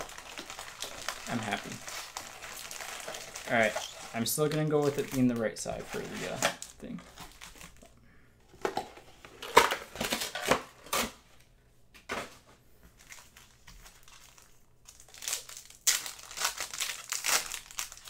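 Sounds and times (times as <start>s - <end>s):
foil packs tearing open: 0.0s - 7.8s, 13.0s - 18.0s
foil packs crinkling: 0.0s - 7.9s, 13.0s - 18.0s.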